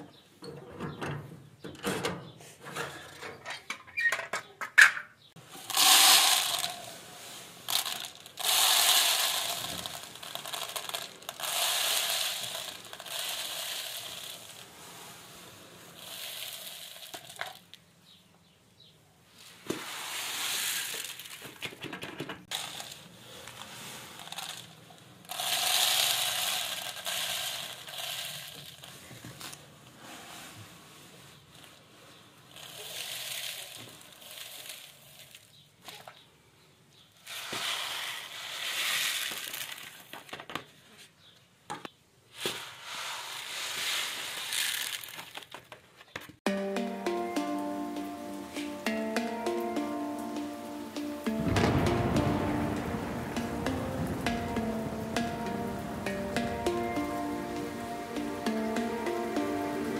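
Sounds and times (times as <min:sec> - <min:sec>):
grain pouring into plastic plate: 0:05.5 - 0:17.7, 0:19.7 - 0:21.5, 0:22.5 - 0:30.5, 0:32.5 - 0:35.5, 0:37.2 - 0:40.1, 0:42.4 - 0:45.4.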